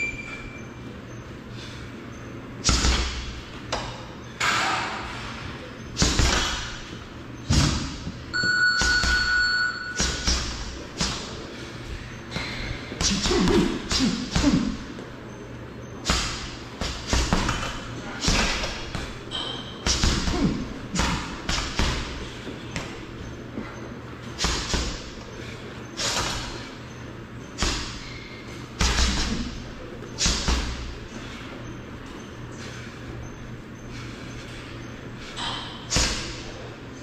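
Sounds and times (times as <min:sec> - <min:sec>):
punches hitting punching bag: 0:02.6 - 0:03.3, 0:06.0 - 0:06.9, 0:10.0 - 0:11.3, 0:16.0 - 0:19.2, 0:19.8 - 0:22.9, 0:24.4 - 0:25.2, 0:27.6 - 0:28.1, 0:28.8 - 0:29.6, 0:30.2 - 0:31.0.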